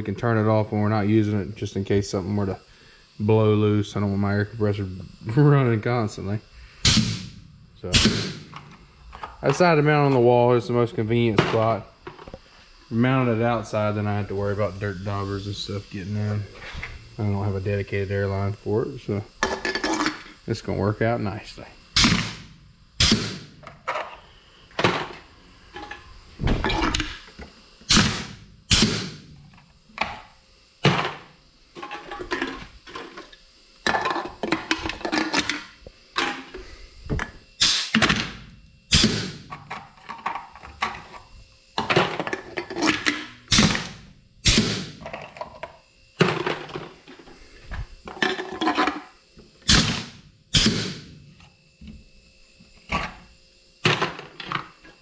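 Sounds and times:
air blasts: 0:01.5 - 0:10.4, 0:11.1 - 0:19.2, 0:21.2 - 0:29.5, 0:36.1 - 0:39.6, 0:42.8 - 0:45.1, 0:46.9 - 0:48.0, 0:49.6 - 0:51.4
pneumatic cylinder bangs: 0:06.8 - 0:08.6, 0:22.0 - 0:23.6, 0:27.9 - 0:29.3, 0:37.6 - 0:39.5, 0:42.8 - 0:45.1, 0:49.6 - 0:51.1.

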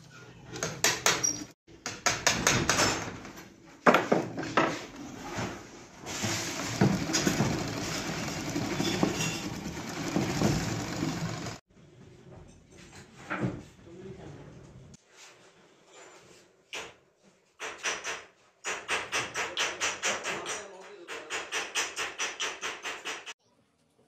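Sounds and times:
sewing machine clicking: 0:06.3 - 0:11.6.

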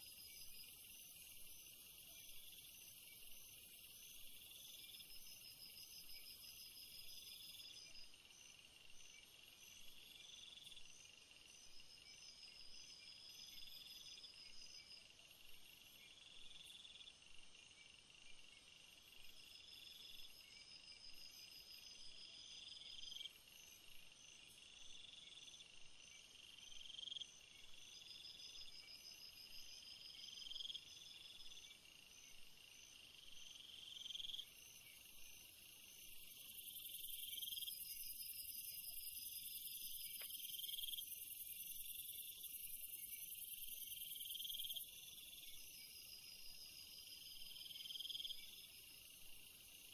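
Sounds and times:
insects trilling: 0:25.0 - 0:49.9.

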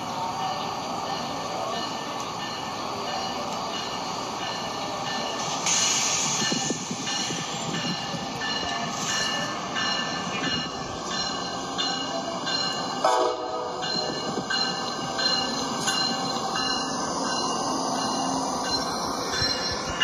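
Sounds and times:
short train horn: 0:13.0 - 0:13.8.

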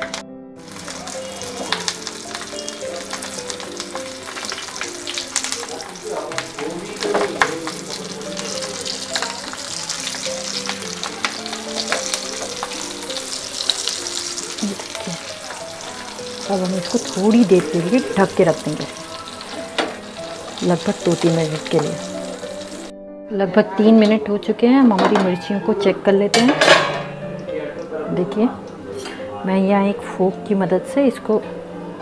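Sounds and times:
chillies sizzling in hot oil: 0:00.0 - 0:22.9.

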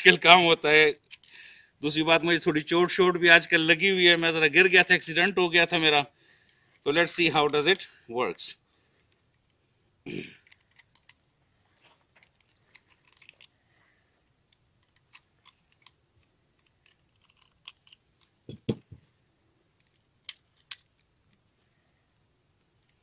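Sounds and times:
cartridges clicking into magazine: 0:19.8 - 0:21.1.

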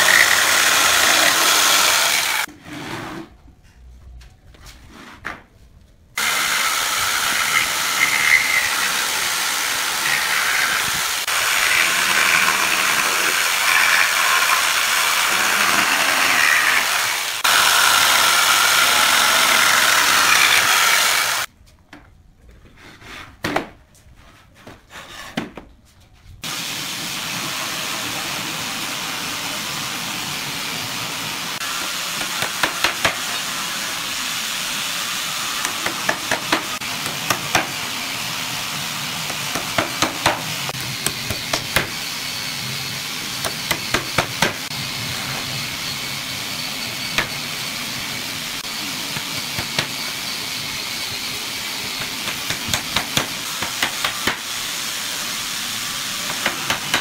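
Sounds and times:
jigsaw cutting wood: 0:00.0 - 0:02.5, 0:06.2 - 0:21.5, 0:27.2 - 0:57.0
hammer tapping nails: 0:52.0 - 0:54.4.

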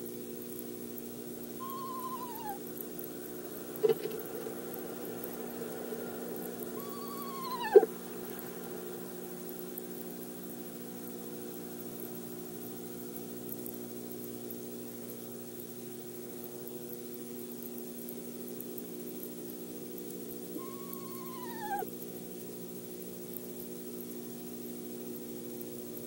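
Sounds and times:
steady low hum: 0:00.0 - 0:26.0
owl call: 0:01.6 - 0:02.6, 0:06.8 - 0:07.9, 0:20.6 - 0:21.9.

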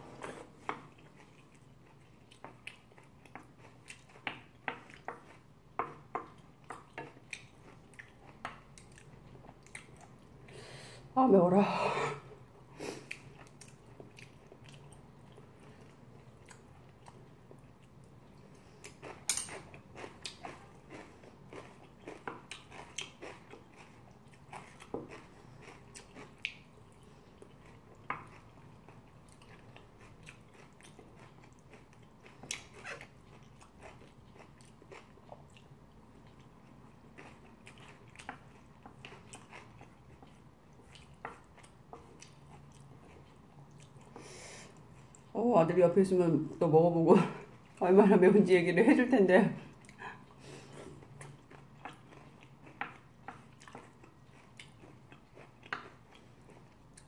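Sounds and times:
chewing and mouth sounds: 0:00.2 - 0:10.4, 0:13.0 - 0:44.2, 0:49.7 - 0:57.0.

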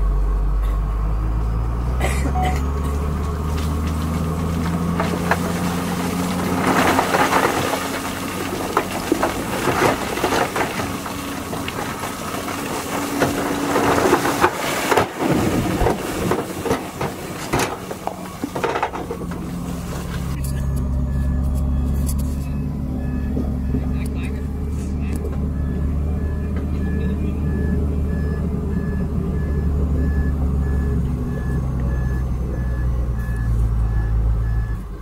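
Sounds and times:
diesel truck engine revving: 0:00.0 - 0:35.0
crushed stone sliding and crunching: 0:02.7 - 0:22.6.

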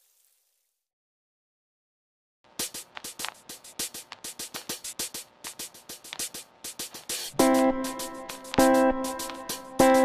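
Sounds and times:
electronic drum-machine beat music: 0:02.5 - 0:10.0.

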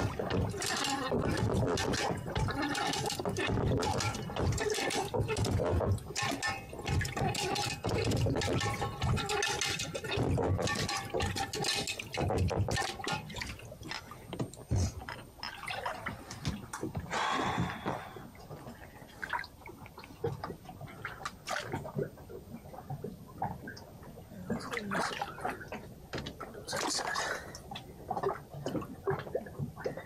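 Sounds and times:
water pouring: 0:00.0 - 0:23.8
water splashing and dripping: 0:00.0 - 0:30.0.

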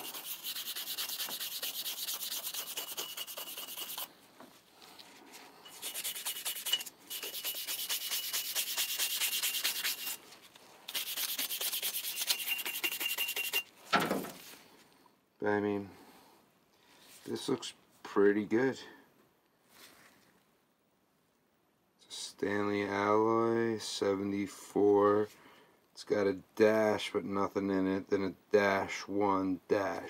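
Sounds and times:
brush scrubbing metal: 0:00.0 - 0:04.1, 0:05.7 - 0:10.2, 0:10.9 - 0:13.6.

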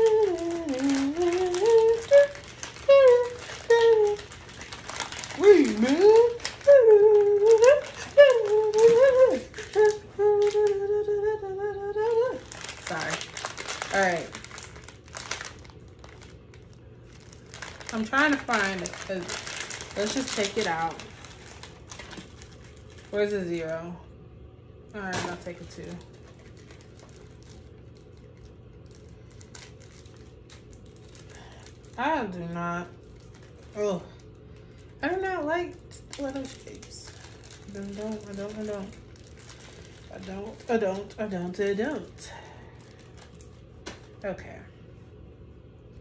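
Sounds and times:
woman humming: 0:00.0 - 0:13.2
plastic bag crinkling: 0:00.0 - 0:23.8, 0:25.0 - 0:44.3
plastic packaging rustling: 0:00.0 - 0:23.8, 0:25.0 - 0:44.3
low steady hum: 0:00.0 - 0:46.0.

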